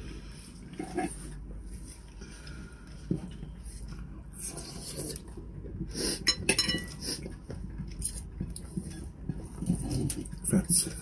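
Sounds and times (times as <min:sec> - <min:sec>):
chewing and eating: 0:00.2 - 0:11.0
cutlery clinking on plate: 0:06.3 - 0:07.0.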